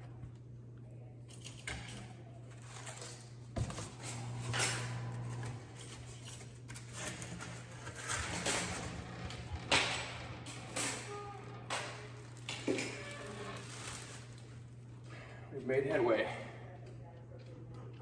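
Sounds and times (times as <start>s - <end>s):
steady low hum: 0.0s - 18.0s
plastic bag rustling: 12.0s - 14.7s.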